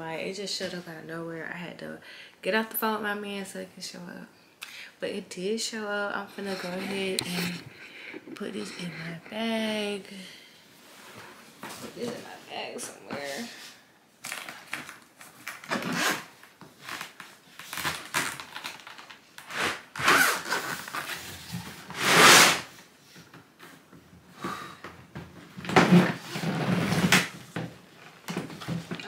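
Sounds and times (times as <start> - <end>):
rustling and scraping: 6.2 - 9.5, 10.8 - 23.9, 25.5 - 29.0.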